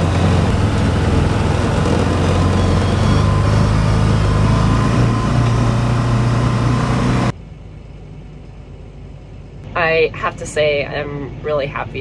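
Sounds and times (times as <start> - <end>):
vehicle engine running: 0.0 - 7.5.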